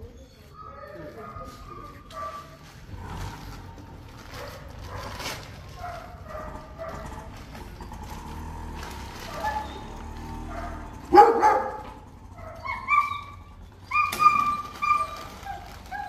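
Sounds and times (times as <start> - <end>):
dog yelping: 0.0 - 2.6, 4.3 - 7.6, 9.1 - 16.0
dog barking: 0.6 - 2.6, 4.3 - 7.3, 9.2 - 16.0.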